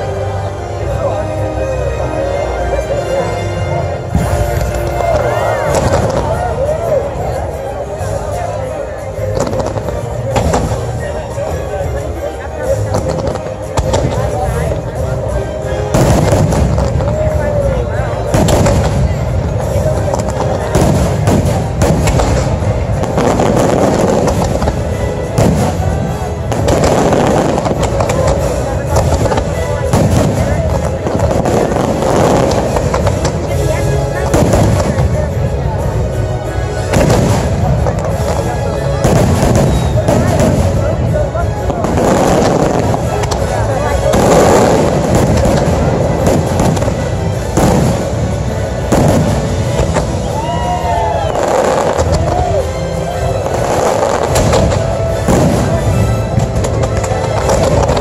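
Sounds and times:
continuous rumble: 0.0 - 58.0
fireworks bangs and crackles: 0.0 - 58.0
loud music: 0.0 - 58.0
sharp firework bangs: 36.9 - 50.3, 53.6 - 58.0.

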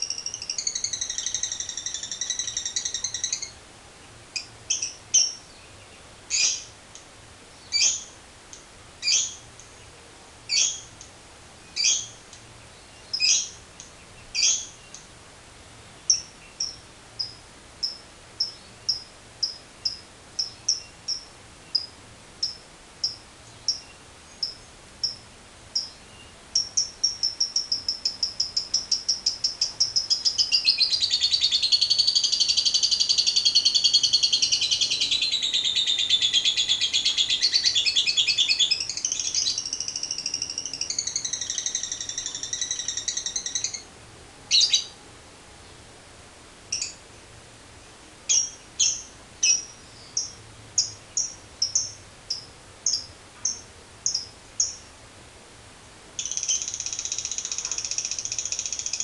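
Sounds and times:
lovebird chirping and trilling: 0.0 - 3.6, 4.4 - 5.6, 6.3 - 6.7, 7.6 - 8.1, 9.0 - 9.4, 10.5 - 11.0, 11.7 - 12.2, 12.9 - 13.6, 14.2 - 15.1, 16.1 - 25.2, 25.8 - 43.9, 44.5 - 45.0, 46.7 - 47.0, 48.3 - 54.8, 56.2 - 59.0.

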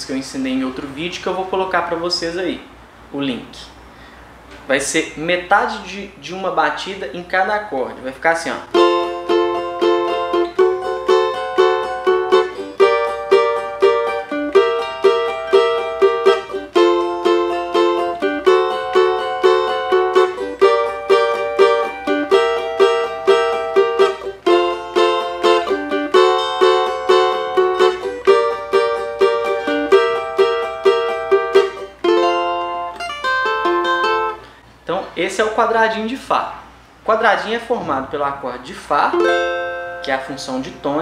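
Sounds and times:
cavaquinho strummed samba rhythm: 8.7 - 34.5, 39.1 - 41.0.

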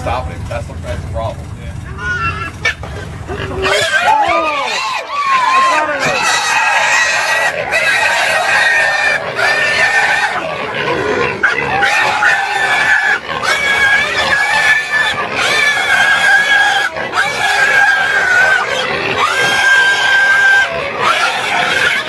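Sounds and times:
pig squealing: 1.8 - 22.0.

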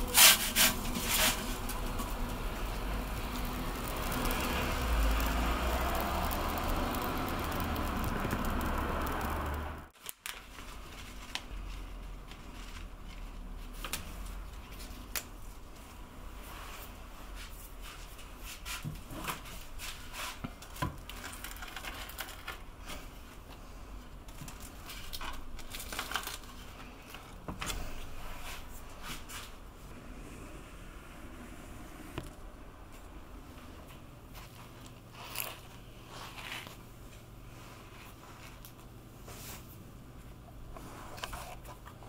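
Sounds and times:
gas oven burner roaring: 0.0 - 9.9, 29.8 - 34.2.

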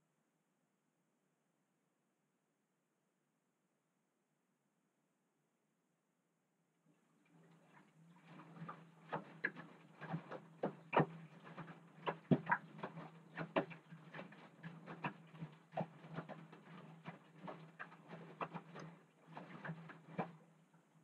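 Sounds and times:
clothes and water sloshing: 6.9 - 21.0
washing machine motor hum: 7.0 - 21.0.

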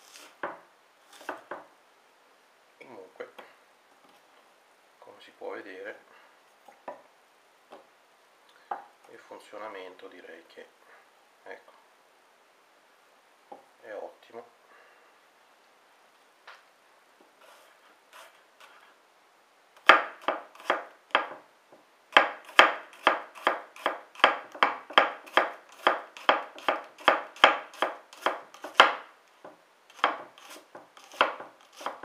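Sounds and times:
knife chopping on wooden board: 1.2 - 1.6, 19.8 - 21.4, 22.2 - 29.0, 29.9 - 32.0.

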